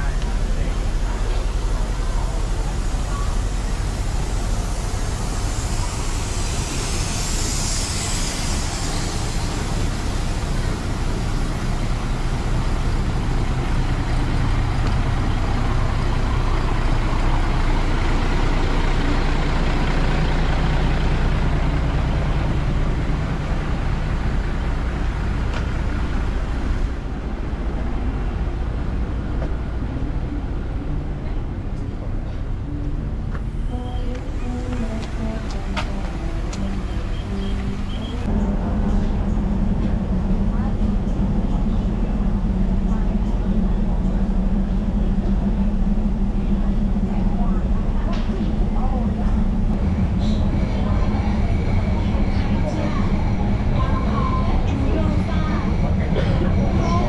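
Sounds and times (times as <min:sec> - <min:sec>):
diesel railcar engine humming: 0:00.0 - 0:57.0
hiss: 0:01.9 - 0:12.9.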